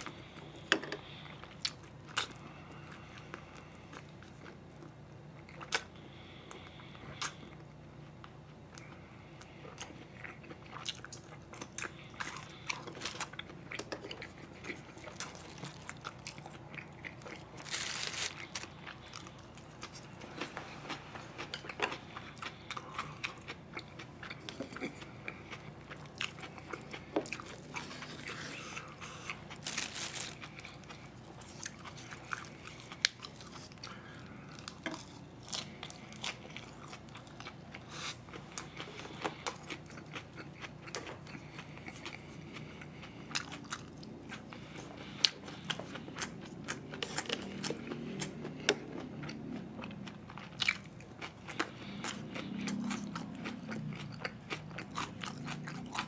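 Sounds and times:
chewing and biting food: 6.6 - 56.0.

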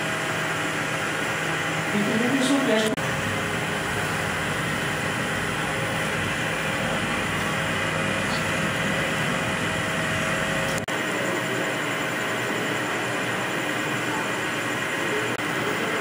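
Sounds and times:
massage machine motor humming: 0.0 - 11.0.

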